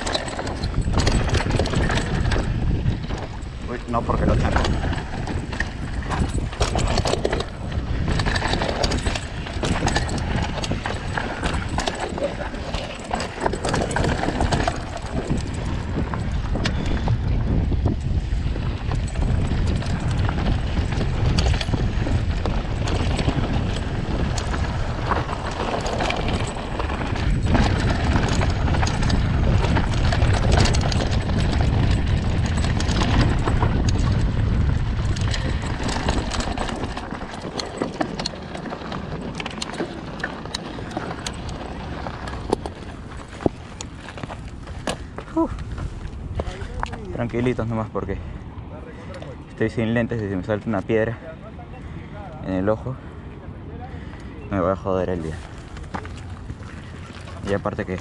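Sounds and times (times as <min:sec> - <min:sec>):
bike tyres crunching on stones: 0:00.0 - 0:47.6, 0:55.1 - 0:58.0
bike rattling and clicking: 0:00.0 - 0:58.0
wind buffeting microphone: 0:00.0 - 0:58.0.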